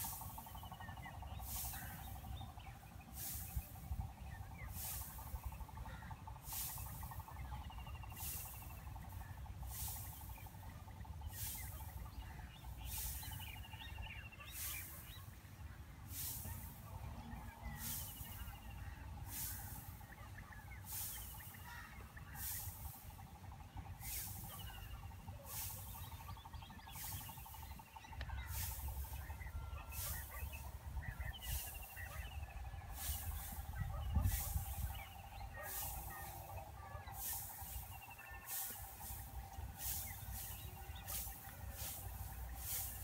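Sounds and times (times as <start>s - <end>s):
small bird chirps: 17.4s - 43.0s.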